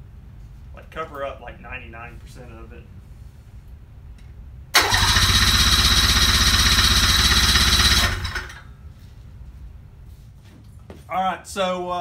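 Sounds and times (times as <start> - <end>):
starter cranking engine: 4.8 - 8.6.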